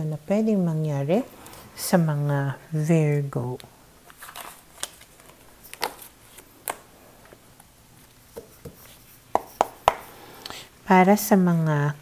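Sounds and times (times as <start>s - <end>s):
cards clicking and tapping: 8.4s - 10.1s.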